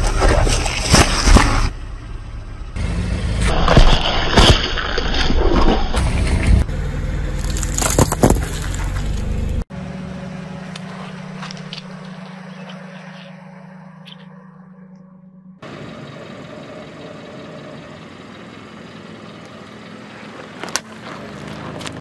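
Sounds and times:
watermelon squashing: 0.0s - 1.7s, 3.4s - 6.1s, 7.4s - 9.3s
objects cracking under a tyre: 0.0s - 1.8s, 3.4s - 6.6s, 7.3s - 9.6s, 20.4s - 22.0s.

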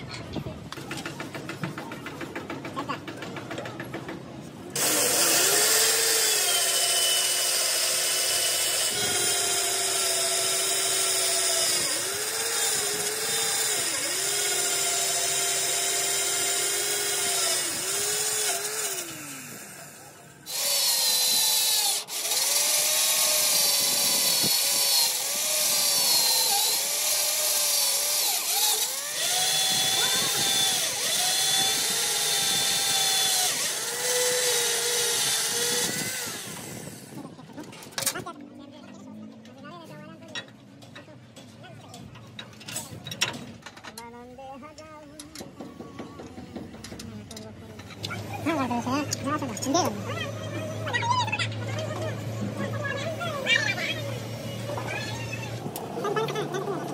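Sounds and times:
electric drill boring through steel: 4.8s - 37.2s.

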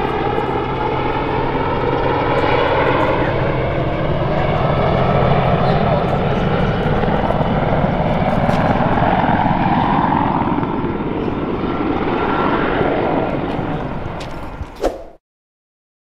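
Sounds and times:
helicopter rotor and turbine noise: 0.0s - 15.2s.

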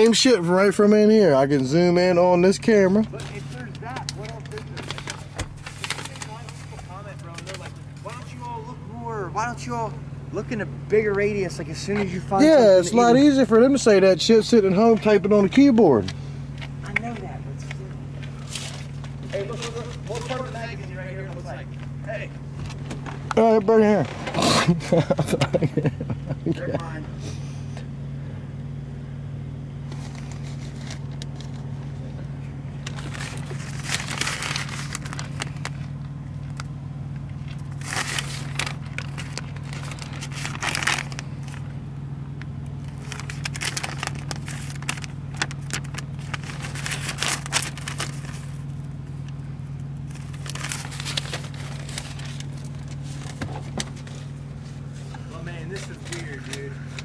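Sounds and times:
crackling rustling handling noise: 0.0s - 9.6s, 10.4s - 27.0s, 29.7s - 57.0s
low drone inside car: 21.3s - 57.0s.

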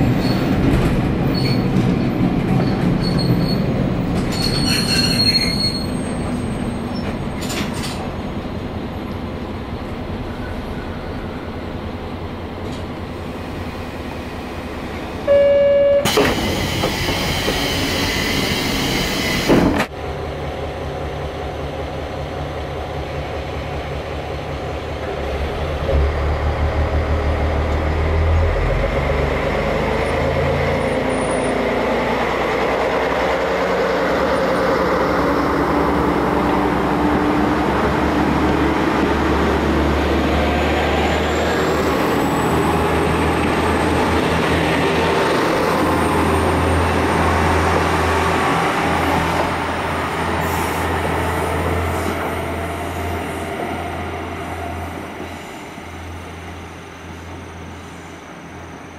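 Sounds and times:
short electronic tone: 15.3s - 16.1s
pneumatic door air hiss: 16.0s - 19.9s.

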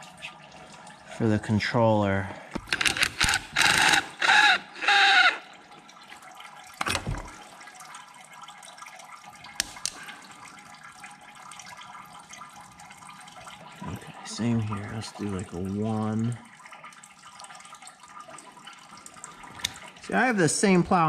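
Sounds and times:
cordless drill whirring: 2.7s - 5.4s.

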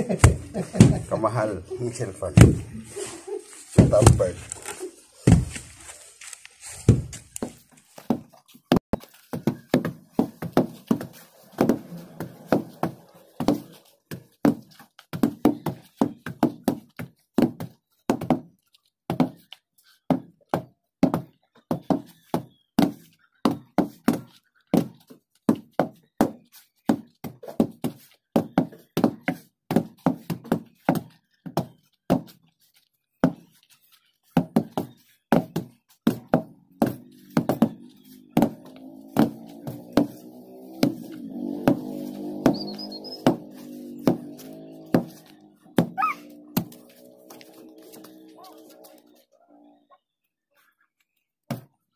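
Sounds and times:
wooden rammers thudding on soil: 0.0s - 1.4s, 2.2s - 2.9s, 3.6s - 18.5s, 34.4s - 49.1s.

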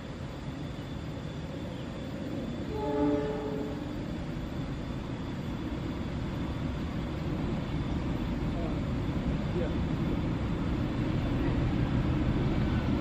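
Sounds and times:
train horn: 2.6s - 4.0s.

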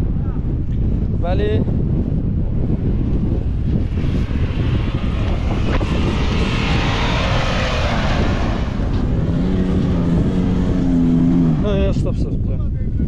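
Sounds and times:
wind buffeting microphone: 0.0s - 13.0s
suv engine climbing: 2.7s - 12.2s.

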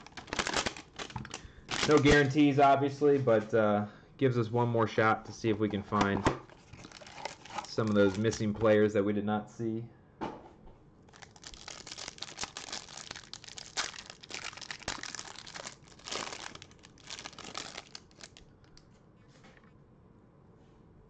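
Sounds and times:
plastic wrapper crinkling and tearing: 0.0s - 2.4s, 6.5s - 8.5s, 11.1s - 18.8s.

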